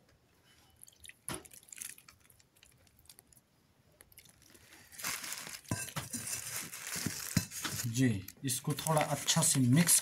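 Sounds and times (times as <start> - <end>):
water drips and ticks: 0.8 - 3.4.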